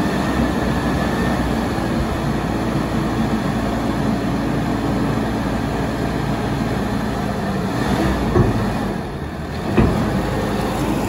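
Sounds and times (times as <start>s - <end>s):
dumper diesel engine running: 0.0s - 11.0s.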